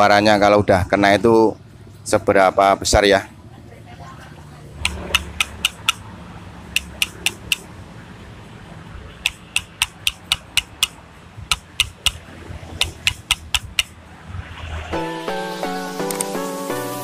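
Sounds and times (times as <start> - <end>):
connecting rod clacking: 4.8 - 6.1, 6.7 - 7.7, 9.2 - 12.2, 12.8 - 13.9.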